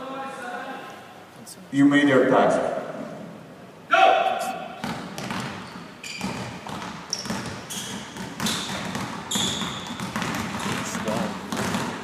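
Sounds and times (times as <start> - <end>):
basketballs bouncing on gym floor: 4.8 - 12.0
short high squeaks: 5.6 - 6.4, 9.3 - 10.0.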